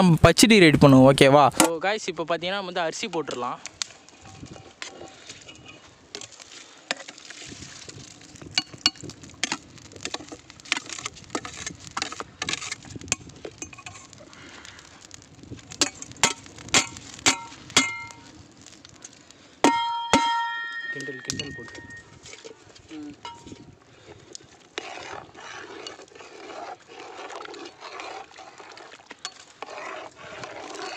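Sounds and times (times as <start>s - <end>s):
metal utensils clinking on pot: 15.8s - 18.2s, 19.6s - 22.6s, 23.2s - 23.6s
ringing metal clang: 19.7s - 22.1s.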